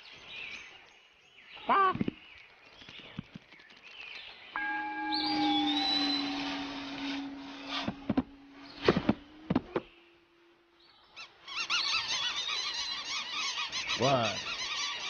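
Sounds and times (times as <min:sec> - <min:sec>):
low falling cartoon honk: 0:04.6 - 0:10.6.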